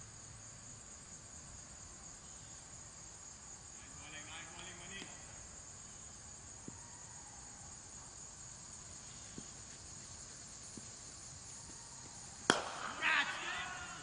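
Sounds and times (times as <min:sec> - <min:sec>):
insects buzzing: 0:00.0 - 0:14.0.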